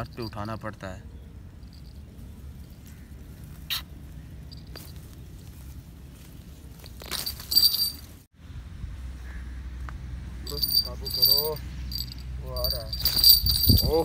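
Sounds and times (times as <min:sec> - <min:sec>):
scuffling and light clicks: 0:01.6 - 0:08.3, 0:10.5 - 0:14.0
bright ringing jingle: 0:10.5 - 0:14.0.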